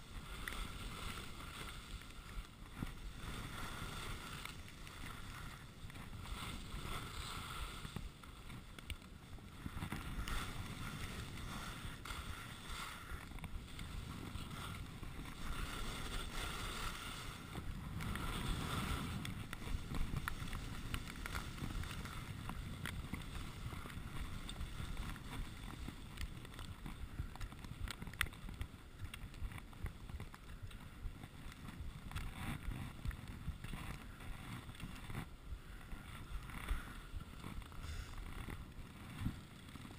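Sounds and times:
skis scraping over snow: 0.0s - 39.9s.

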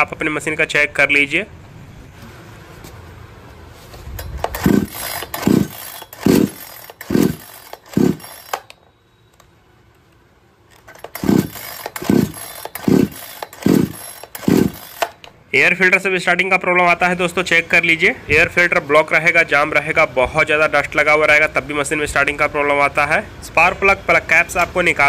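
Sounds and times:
chainsaw recoil starter pulls: 4.0s - 8.8s, 10.7s - 15.3s.

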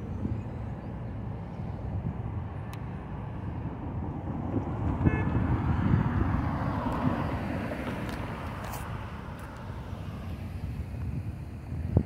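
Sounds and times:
cars passing: 0.0s - 12.0s.

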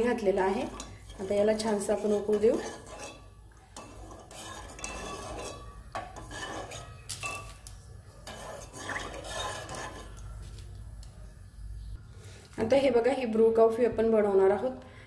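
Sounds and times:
spoon scraping and clinking in pan: 0.0s - 10.2s.

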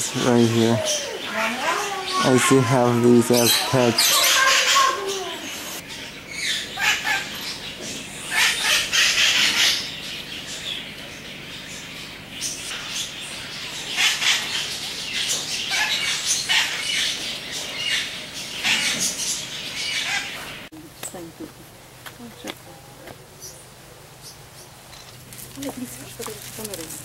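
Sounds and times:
parrots squawking: 0.0s - 10.4s, 12.4s - 20.7s.

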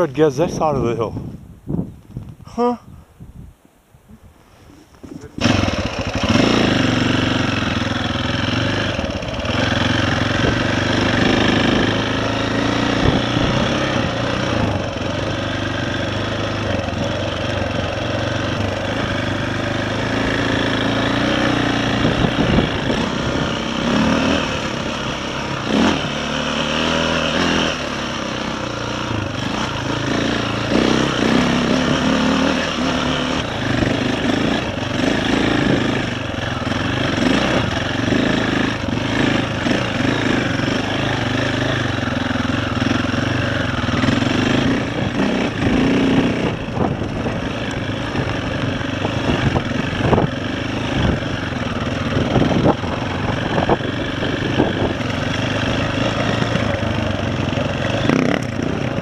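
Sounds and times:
dirt bike engine revving: 5.1s - 59.0s.

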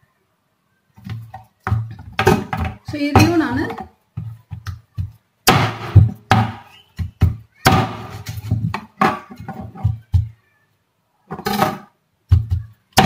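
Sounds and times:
cleaver chopping on wooden board: 5.5s - 6.6s.

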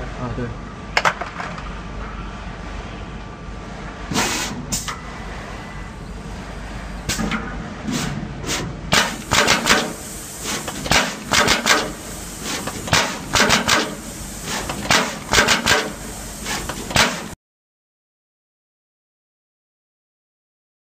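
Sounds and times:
steady machine noise: 1.8s - 17.4s
machine head clacking sharply: 12.9s - 14.0s.

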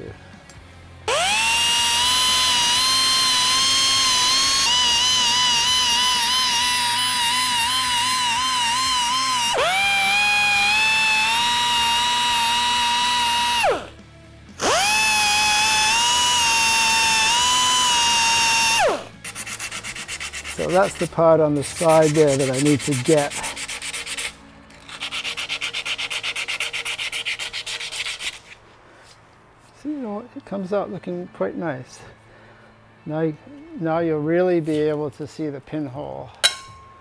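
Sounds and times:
belt sander whining: 1.0s - 21.0s.

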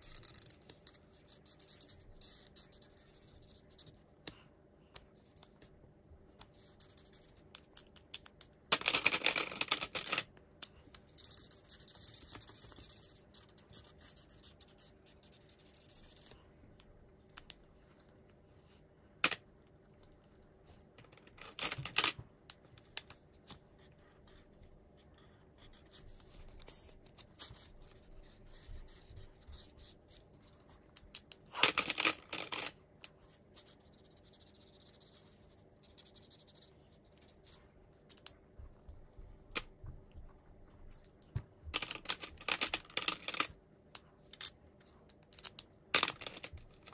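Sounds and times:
marker scratching on paper: 0.0s - 4.0s, 13.3s - 16.2s, 25.2s - 30.6s.

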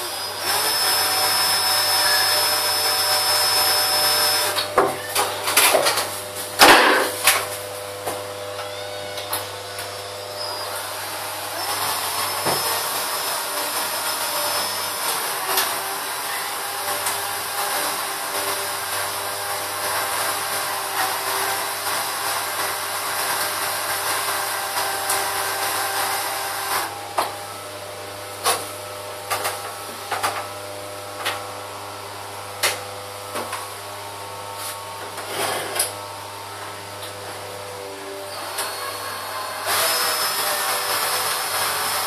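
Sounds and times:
cordless drill running: 0.0s - 5.2s, 8.2s - 27.8s, 37.7s - 42.0s.

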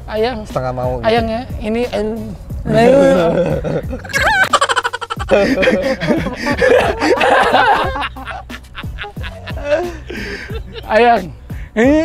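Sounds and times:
men laughing: 2.7s - 12.0s.

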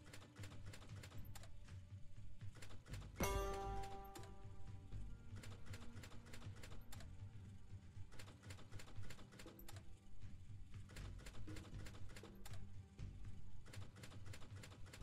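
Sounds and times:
slot game reel clicks: 2.6s - 4.6s, 5.3s - 7.2s, 8.2s - 9.9s.

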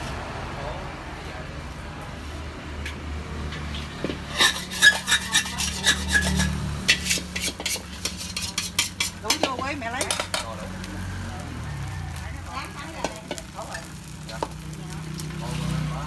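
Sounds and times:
metal scraper scraping a frying pan: 3.7s - 10.5s.

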